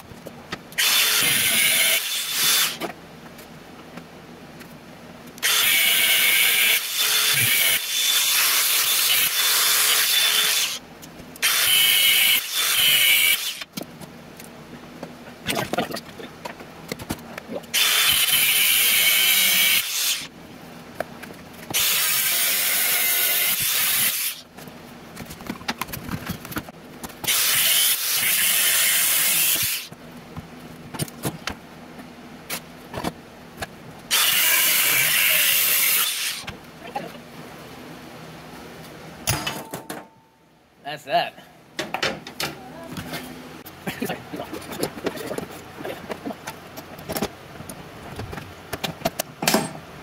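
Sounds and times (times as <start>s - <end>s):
angle grinder cutting steel: 0.8s - 2.8s, 5.4s - 10.8s, 11.4s - 13.7s, 17.8s - 20.3s, 21.7s - 24.4s, 27.3s - 29.9s, 34.1s - 36.5s.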